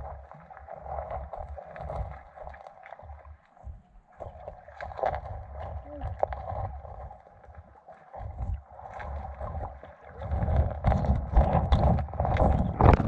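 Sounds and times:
wind buffeting microphone: 10.6s - 13.0s.

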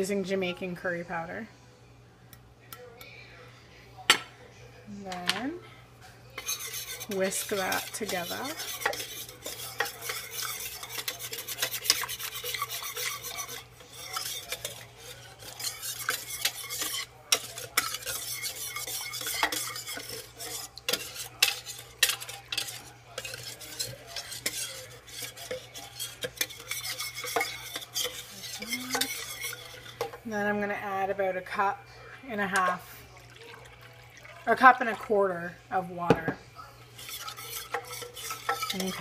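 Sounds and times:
metal whisk scraping a crock: 6.3s - 30.7s, 36.9s - 39.0s
liquid churning: 6.4s - 30.6s, 32.7s - 35.2s, 36.9s - 39.0s.

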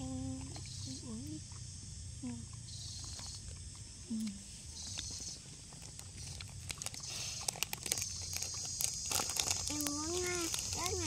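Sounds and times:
plastic bottle crackling: 5.7s - 11.0s.

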